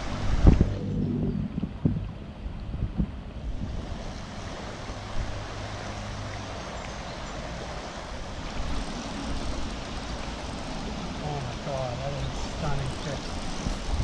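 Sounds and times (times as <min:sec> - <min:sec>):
river water rushing: 0:00.0 - 0:02.5, 0:03.2 - 0:14.0
wind on microphone: 0:00.0 - 0:06.6, 0:12.2 - 0:14.0.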